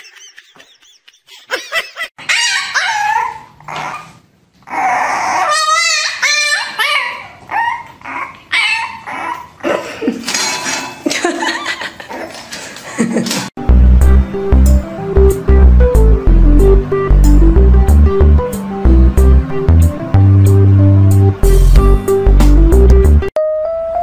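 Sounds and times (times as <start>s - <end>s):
puppies whining and yipping: 2.2s - 9.7s.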